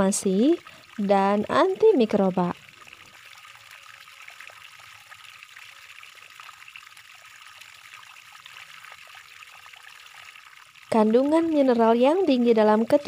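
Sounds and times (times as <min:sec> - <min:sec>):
water trickling and dripping: 0:00.0 - 0:13.0.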